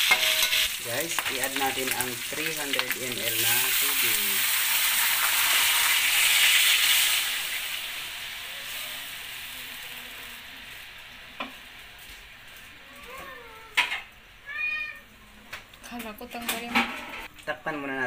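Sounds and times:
oil sizzling and steam hissing: 0.0s - 14.4s.

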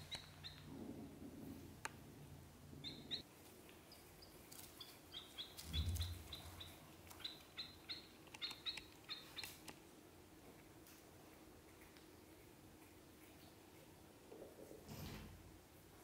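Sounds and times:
ducklings peeping: 0.0s - 0.7s, 2.8s - 3.2s, 3.9s - 9.6s.

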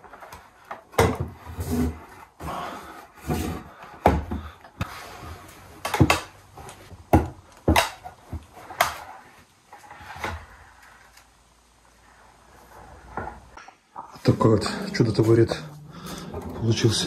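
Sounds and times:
wood scraping and rubbing: 1.4s - 5.5s.

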